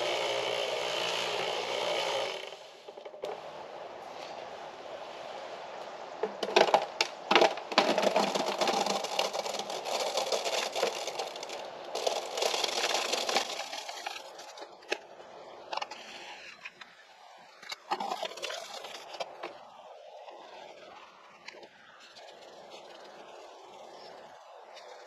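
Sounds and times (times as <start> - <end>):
concrete mix rattling and scraping: 6.2 - 15.0, 17.6 - 19.6.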